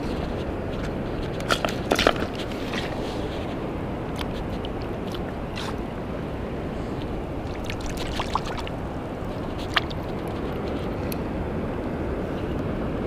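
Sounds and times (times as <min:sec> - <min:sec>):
shallow sea water rushing: 0:01.5 - 0:11.0.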